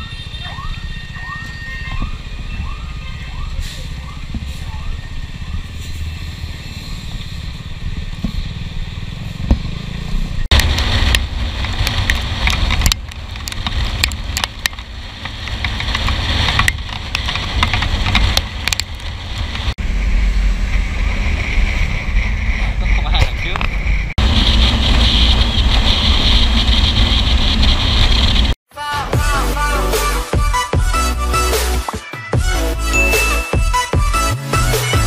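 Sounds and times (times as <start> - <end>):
wind rush over microphone: 20.5 - 28.6.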